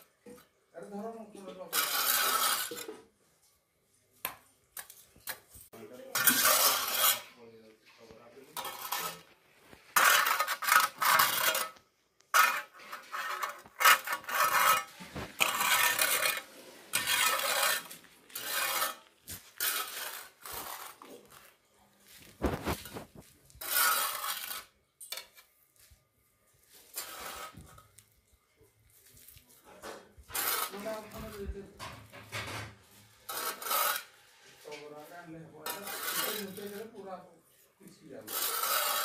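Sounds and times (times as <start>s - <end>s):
metal scoop scraping sand on concrete: 1.7s - 3.1s, 5.7s - 7.4s, 8.0s - 25.9s, 26.6s - 28.0s, 29.0s - 31.7s, 32.3s - 37.1s, 37.9s - 39.0s.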